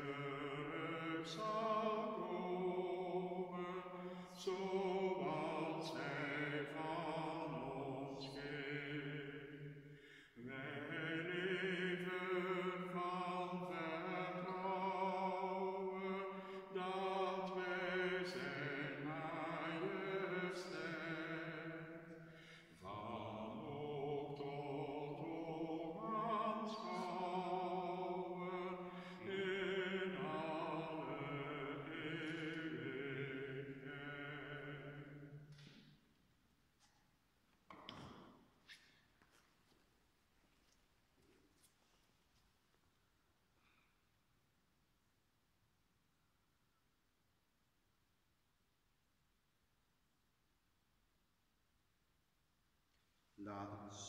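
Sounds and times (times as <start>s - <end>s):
person singing sacred song: 0.0s - 9.8s, 10.4s - 35.3s.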